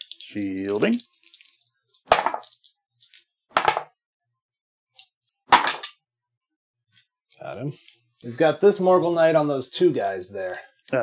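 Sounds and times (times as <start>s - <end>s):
dice clattering in tray: 0.0s - 3.8s.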